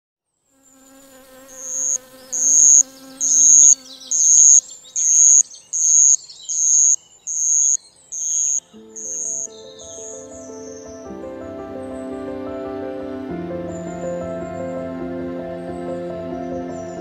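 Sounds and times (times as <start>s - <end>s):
flying insect buzzing: 0.5s - 10.2s
loud high-pitched chirp: 1.5s - 10.8s
soft music notes: 8.7s - 17.0s.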